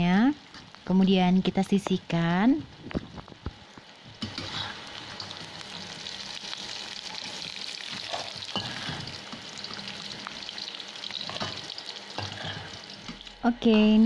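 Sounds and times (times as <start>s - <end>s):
oil sizzling in wok: 0.0s - 14.0s
spatula scraping wok: 4.2s - 10.1s.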